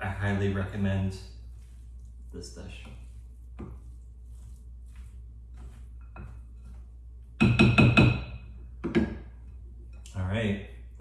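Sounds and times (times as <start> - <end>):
salad stirring in glass bowl: 1.3 - 7.0
utensil knocking on glass bowl: 7.4 - 9.2.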